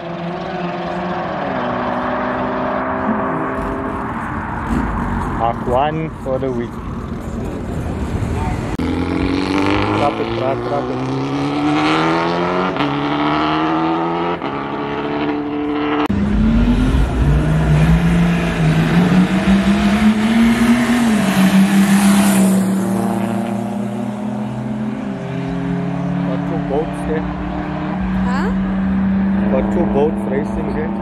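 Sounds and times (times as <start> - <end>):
vehicle accelerating through gears: 0.0 - 6.6, 8.1 - 31.0
deeper engine note revving: 7.9 - 31.0.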